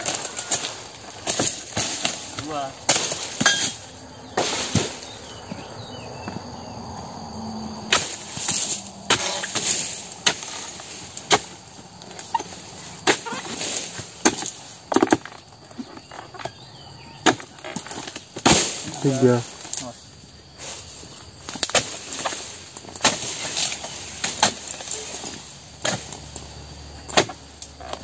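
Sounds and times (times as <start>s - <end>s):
chisel chopping palm stalks: 0.0s - 5.2s, 7.9s - 15.4s, 17.2s - 19.9s, 21.4s - 28.0s.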